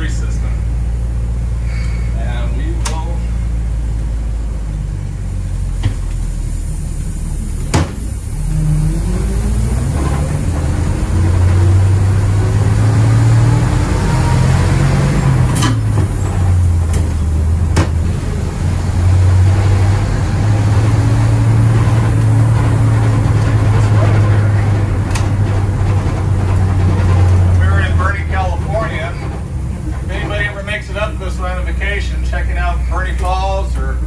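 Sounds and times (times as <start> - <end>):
bus engine running: 0.0 - 34.0
sharp knocks and rattles: 14.9 - 18.2, 20.5 - 30.5.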